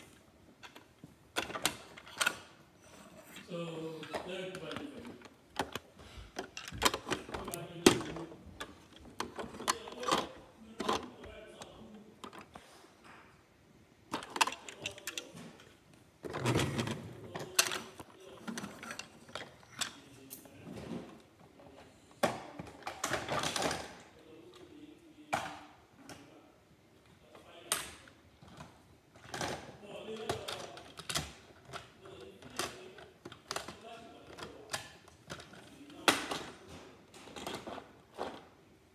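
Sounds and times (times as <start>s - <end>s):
plastic toy cars clattering on floor: 4.0s - 12.6s, 14.1s - 21.2s, 22.2s - 24.1s, 27.7s - 38.6s.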